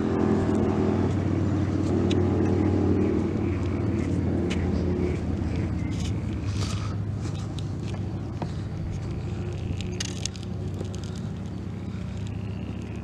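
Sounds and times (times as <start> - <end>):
engine humming: 0.0 - 13.0
faint ticks: 9.4 - 13.0.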